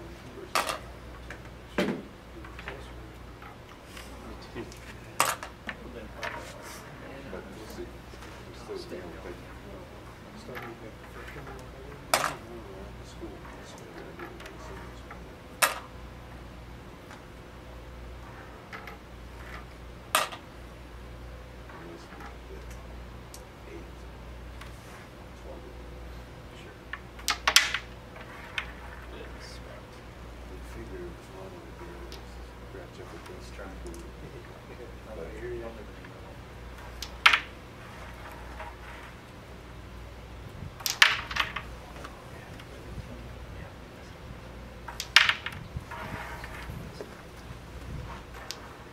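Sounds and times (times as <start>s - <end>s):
discs clacking on board: 0.0s - 6.6s, 10.4s - 16.0s, 18.2s - 20.6s, 26.9s - 29.8s, 35.6s - 39.5s, 40.8s - 42.8s, 44.8s - 48.9s
sharp wooden click: 27.2s - 27.9s, 36.9s - 37.5s, 44.9s - 45.6s
discs tapping: 44.8s - 48.9s.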